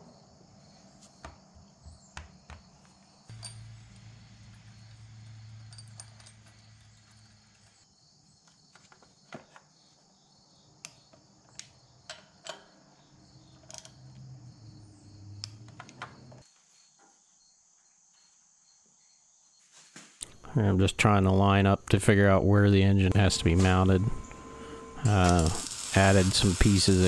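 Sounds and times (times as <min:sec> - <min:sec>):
wrench and bolts clinking: 0:03.3 - 0:07.8
steady high-pitched hiss: 0:19.7 - 0:27.0
low hum: 0:21.8 - 0:27.0.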